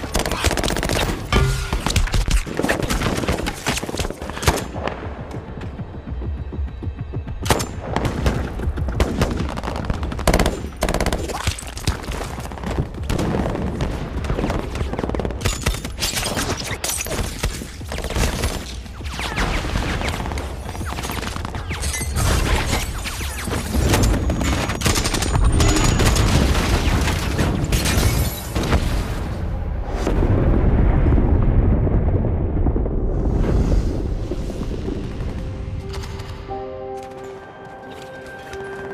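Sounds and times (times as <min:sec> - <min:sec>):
heavy explosion rumbling: 0:28.7 - 0:35.8.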